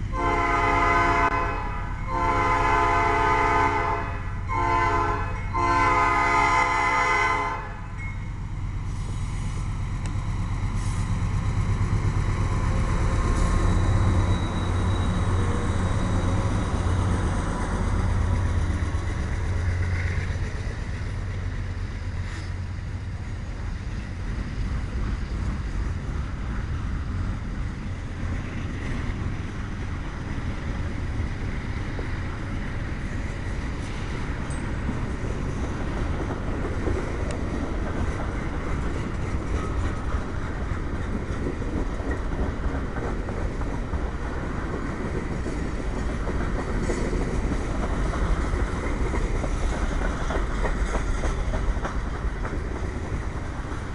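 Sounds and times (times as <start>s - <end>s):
train wheels rumbling on rails: 0.0s - 53.9s
faint clacks: 45.5s - 52.6s.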